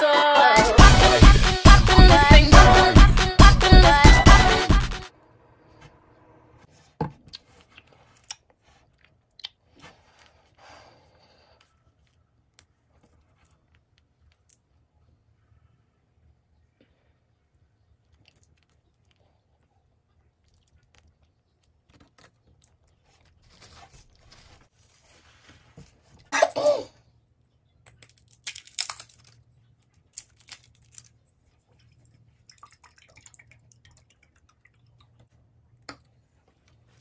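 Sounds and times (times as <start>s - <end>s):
crunching and chewing food: 7.3s - 15.3s, 16.8s - 26.3s, 27.2s - 37.0s
cough-like throat sound: 26.3s - 27.0s.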